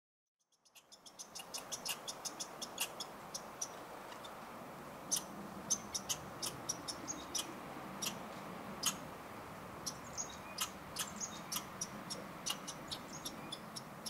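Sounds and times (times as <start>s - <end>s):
woodpecker tapping: 0.5s - 4.4s, 5.1s - 8.2s, 9.8s - 14.0s
background hiss: 0.7s - 14.0s.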